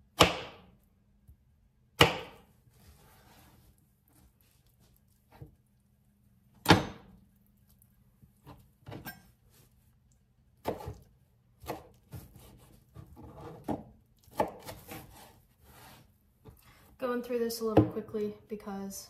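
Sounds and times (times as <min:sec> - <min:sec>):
knife chopping on cutting board: 0:00.2 - 0:00.7, 0:02.0 - 0:02.5, 0:06.6 - 0:07.1, 0:10.6 - 0:11.0, 0:11.6 - 0:16.0.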